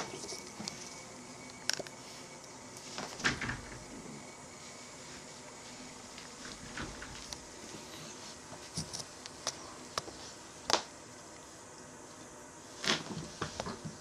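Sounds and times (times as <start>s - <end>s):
cats play-fighting scuffles: 12.8s - 14.0s.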